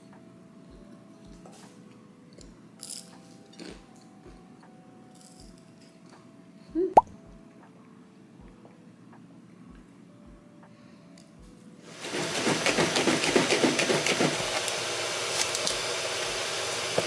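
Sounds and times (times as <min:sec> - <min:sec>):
soft lo-fi background music: 0:00.0 - 0:17.0.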